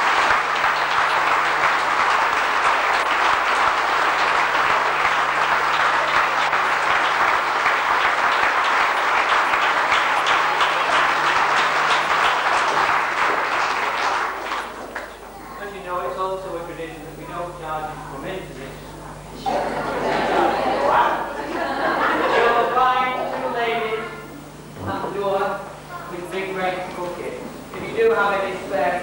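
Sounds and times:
audience applauding: 0.0 - 15.3.

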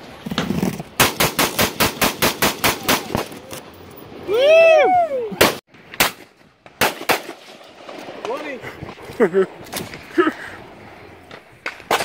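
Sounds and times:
loud cry: 4.3 - 5.4.

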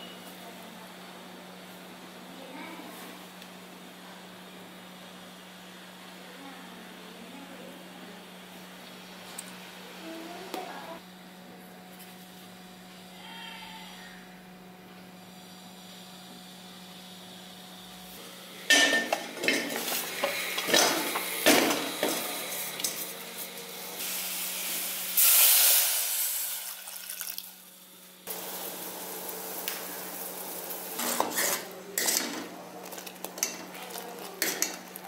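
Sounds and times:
water pouring: 26.6 - 27.6.

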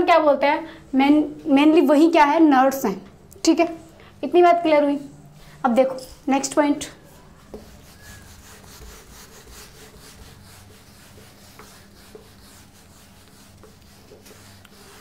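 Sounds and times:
cloth rubbing on whiteboard: 7.0 - 15.0.

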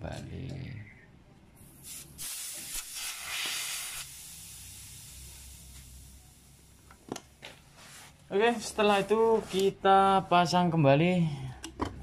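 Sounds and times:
refrigerant gas hissing: 1.6 - 7.3.

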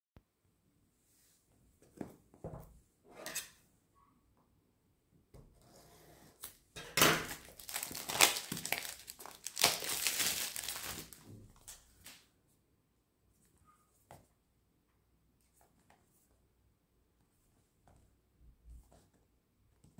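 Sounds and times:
plastic wrap crinkling and tearing: 7.2 - 12.2.

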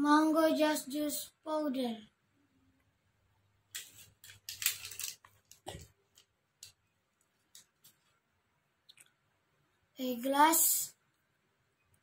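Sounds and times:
plastic sachet rustling: 3.8 - 6.3.

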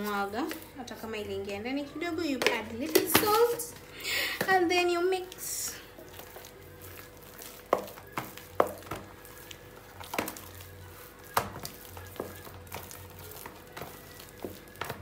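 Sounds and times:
spoon mashing potatoes: 4.4 - 15.0.

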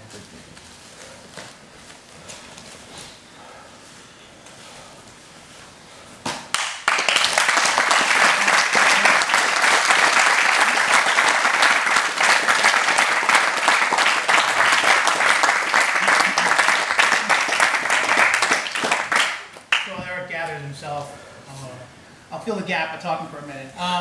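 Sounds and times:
group of people applauding: 6.5 - 20.0.

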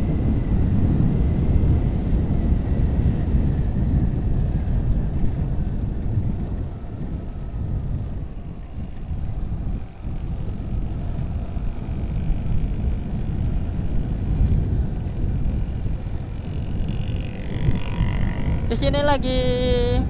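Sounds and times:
motorcycle engine: 0.0 - 20.0
wind and road noise: 0.0 - 20.0.

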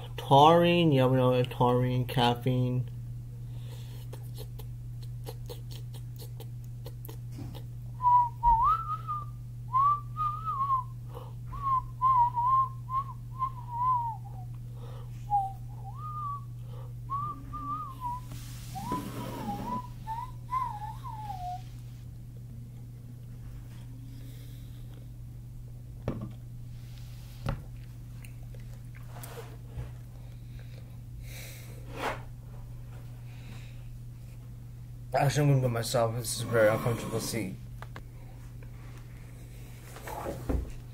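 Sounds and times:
steady low hum: 0.0 - 40.9
person whistling: 8.0 - 14.5, 15.3 - 16.5, 17.1 - 21.7.

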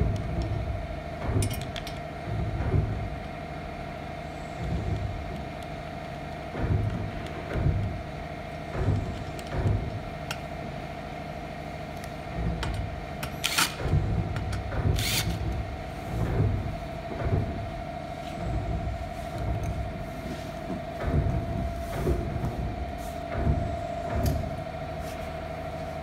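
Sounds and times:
cordless drill whirring: 13.4 - 13.8, 15.0 - 15.4.

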